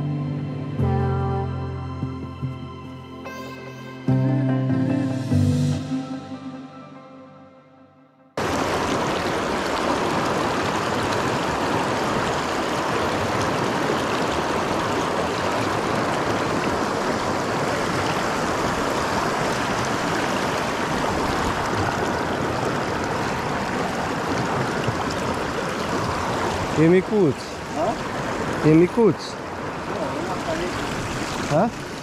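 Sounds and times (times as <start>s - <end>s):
river water rushing over stones: 8.4s - 32.0s.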